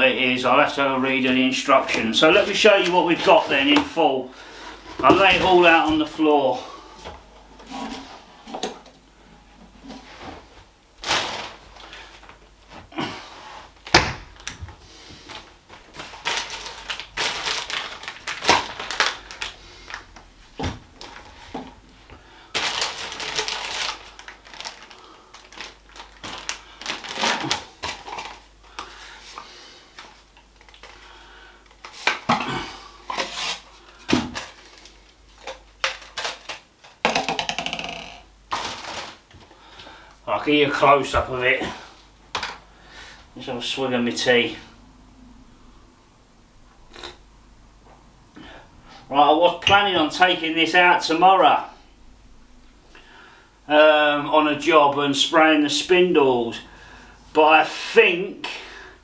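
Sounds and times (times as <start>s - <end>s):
packaging rustling: 11.0s - 12.8s, 13.7s - 37.2s, 37.8s - 39.9s
plastic and metal pieces clattering: 15.3s - 20.0s, 22.6s - 28.5s, 33.1s - 39.4s.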